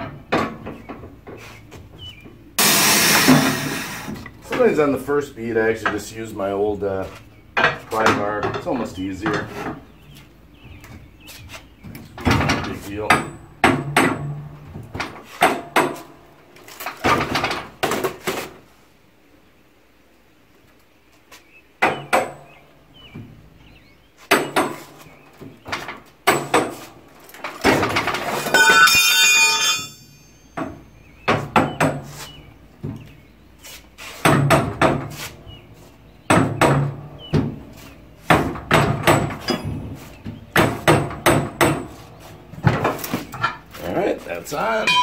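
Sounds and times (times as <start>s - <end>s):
metal knocks and clanks: 0.0s - 4.8s, 7.6s - 11.1s, 11.9s - 16.2s, 24.3s - 33.2s, 36.2s - 43.9s, 44.6s - 45.0s.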